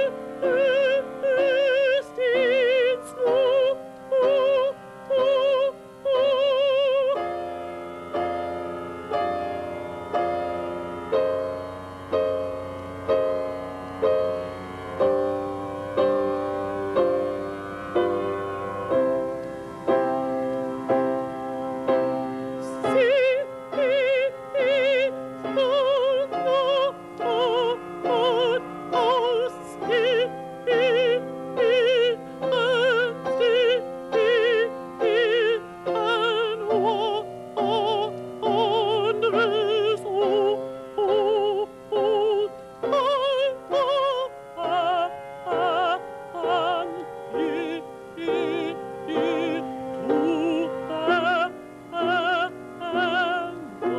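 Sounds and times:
male opera singer: 0:00.0 - 0:07.3, 0:21.6 - 0:53.9
piano accompaniment: 0:00.0 - 0:53.9.

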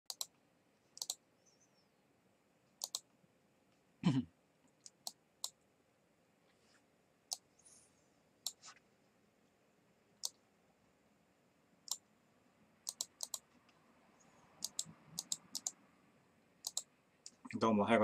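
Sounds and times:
small sharp clicks: 0:00.1 - 0:00.4, 0:01.0 - 0:01.2, 0:02.8 - 0:03.1, 0:12.9 - 0:13.8, 0:14.6 - 0:15.8, 0:16.6 - 0:17.4.

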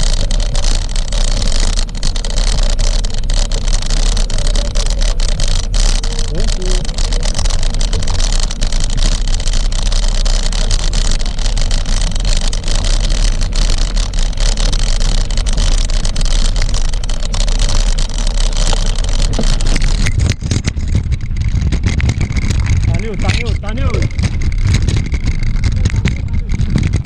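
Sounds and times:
bike clicks and rattles: 0:00.0 - 0:27.0
wind buffeting microphone: 0:13.5 - 0:27.0.

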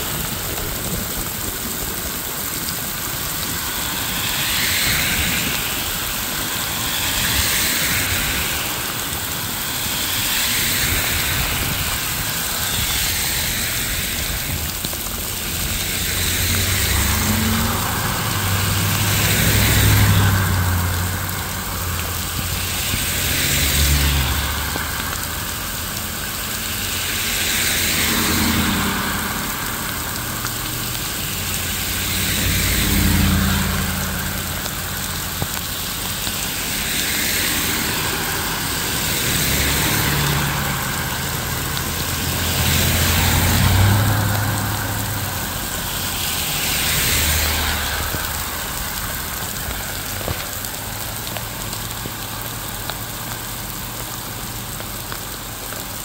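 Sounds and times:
steady rain: 0:00.0 - 0:56.0
vehicles passing on wet road: 0:00.0 - 0:56.0.

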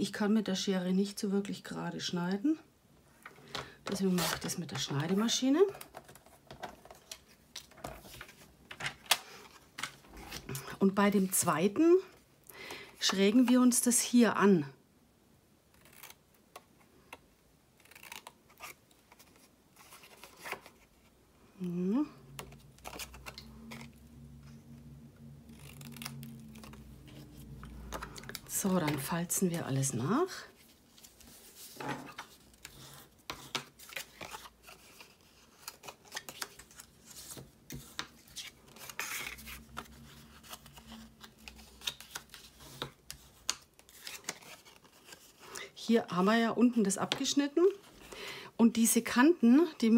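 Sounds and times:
cardstock folding scrapes: 0:30.6 - 0:45.6.

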